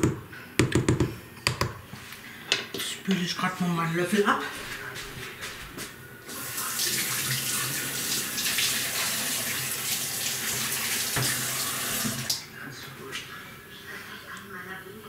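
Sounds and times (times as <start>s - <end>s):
tap water running into sink: 6.3s - 12.4s.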